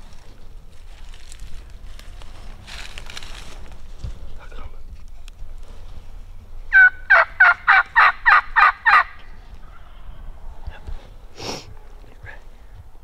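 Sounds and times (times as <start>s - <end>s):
turkey yelps: 6.7s - 10.0s.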